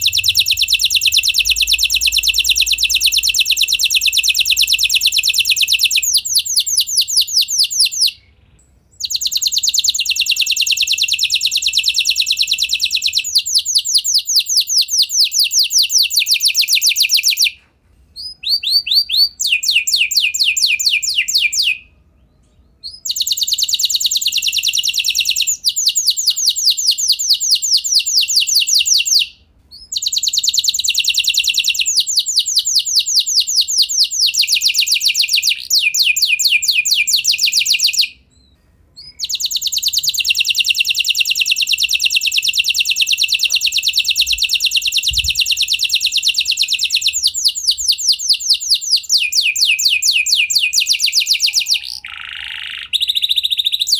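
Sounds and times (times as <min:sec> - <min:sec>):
canary trilling: 0:00.0 - 0:17.6, 0:18.2 - 0:53.9.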